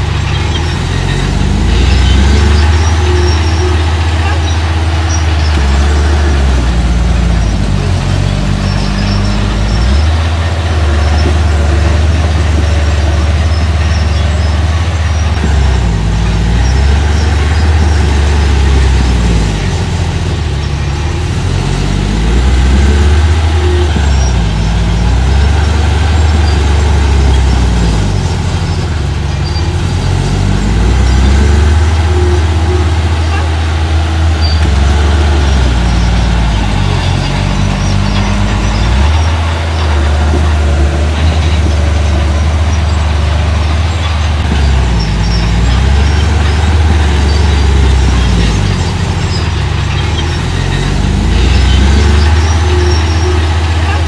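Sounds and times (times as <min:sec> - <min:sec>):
earthmoving machine engine revving: 0:00.0 - 0:54.0.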